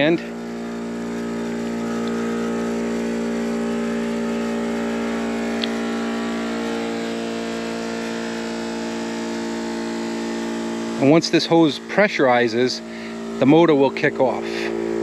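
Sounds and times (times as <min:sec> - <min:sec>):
compressor humming: 0:00.0 - 0:15.0.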